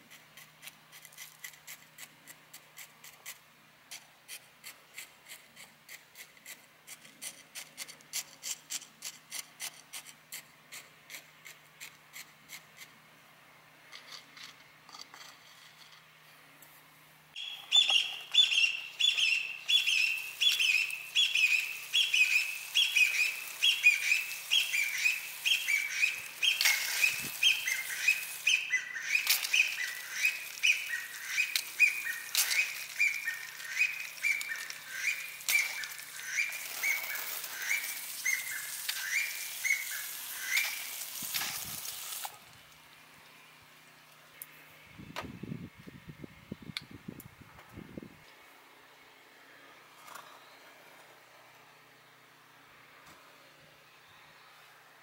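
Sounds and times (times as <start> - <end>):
bird calling: 17.4 - 41.1
watering can spraying water: 19.6 - 42.5.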